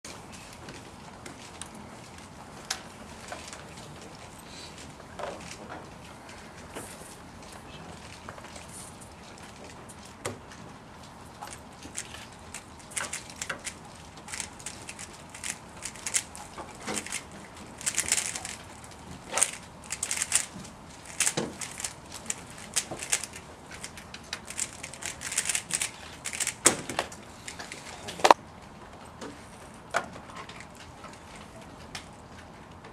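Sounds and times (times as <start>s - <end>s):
plastic cube clicking and clacking: 11.9s - 27.1s.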